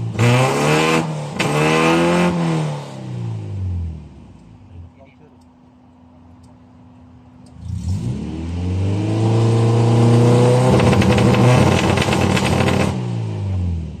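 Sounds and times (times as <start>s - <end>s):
car engine revving: 0.0s - 4.3s, 7.5s - 14.0s.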